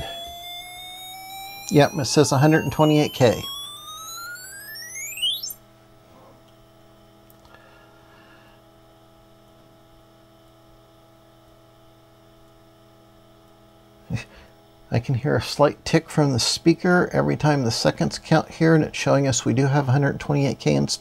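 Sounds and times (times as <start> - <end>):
rising electronic tone sweep: 0.0 - 5.6
faint electrical hum: 0.0 - 21.0.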